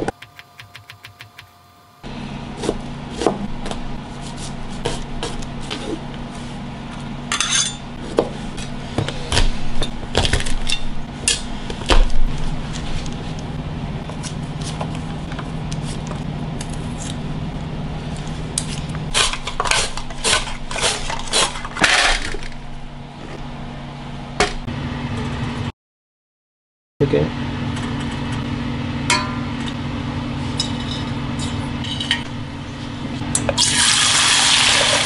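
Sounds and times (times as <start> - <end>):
steady low hum: 0.0 - 25.7, 27.0 - 34.4
knife chopping on cutting board: 2.6 - 6.0.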